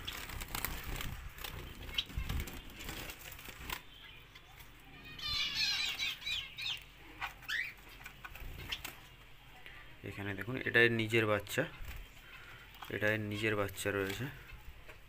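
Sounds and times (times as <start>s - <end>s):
birds fluttering in cage: 0.0s - 9.4s, 10.1s - 15.0s
high bird chirps: 1.4s - 9.2s.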